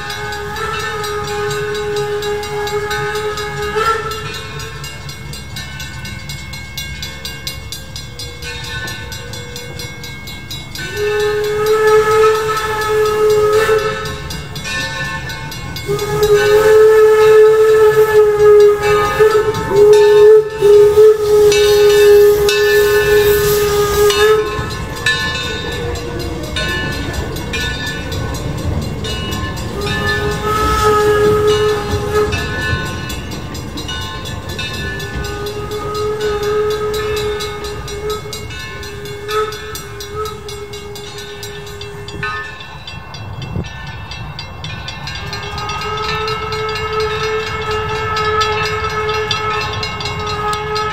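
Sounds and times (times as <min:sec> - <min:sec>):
steam locomotive whistle blasts: 0:00.0 - 0:06.1, 0:10.8 - 0:43.7, 0:45.0 - 0:50.9
low rumble of train cars rolling: 0:00.0 - 0:50.9.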